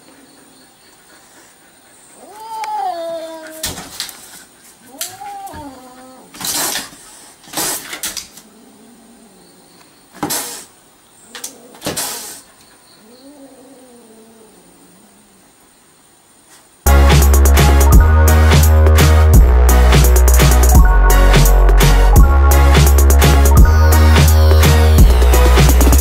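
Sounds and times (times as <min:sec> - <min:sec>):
cat yowling: 0:02.2 - 0:03.7, 0:04.9 - 0:06.3
cat hissing: 0:04.8 - 0:09.4, 0:10.2 - 0:10.8, 0:11.4 - 0:14.7.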